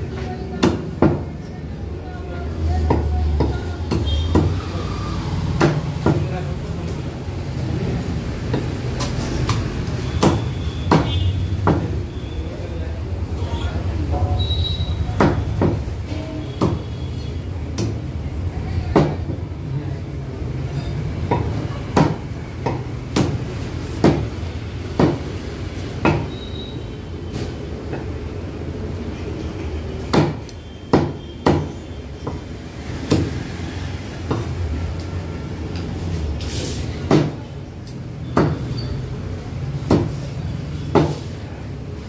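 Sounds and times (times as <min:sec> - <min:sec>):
cleaver chopping on wooden block: 0:25.0 - 0:25.2.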